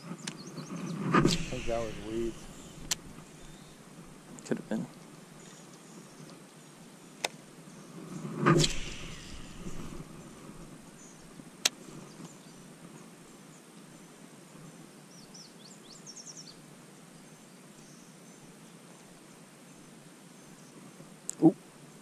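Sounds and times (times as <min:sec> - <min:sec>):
bird chirping: 0:00.2 - 0:03.9
sharp click: 0:01.1 - 0:03.2, 0:08.4 - 0:10.1.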